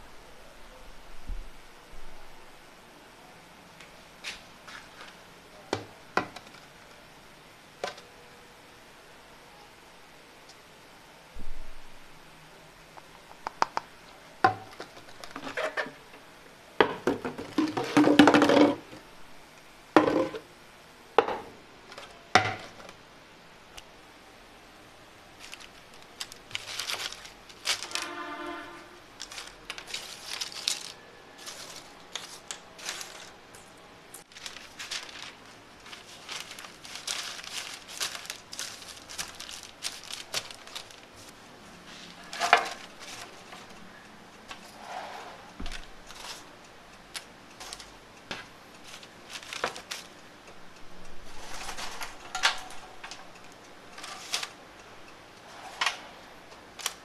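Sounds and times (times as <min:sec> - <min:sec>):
plastic and paper rustling: 0:03.8 - 0:07.0, 0:14.6 - 0:16.0, 0:25.3 - 0:44.8, 0:45.6 - 0:50.3, 0:51.2 - 0:54.6, 0:55.5 - 0:57.0.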